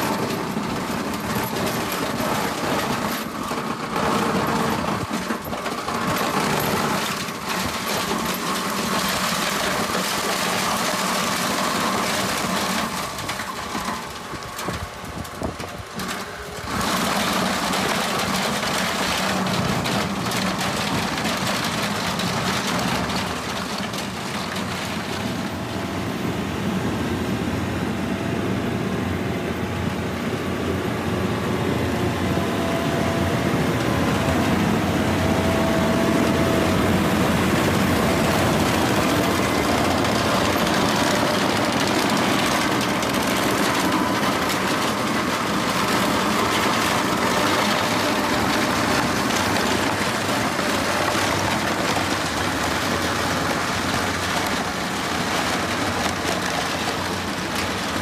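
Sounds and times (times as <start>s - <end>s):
stone crusher grinding clatter: 0.0s - 14.8s
tractor engine running: 0.0s - 58.0s.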